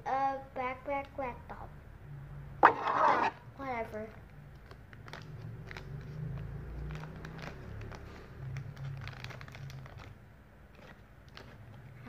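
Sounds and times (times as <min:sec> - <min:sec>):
plastic crinkling: 0:04.6 - 0:12.0.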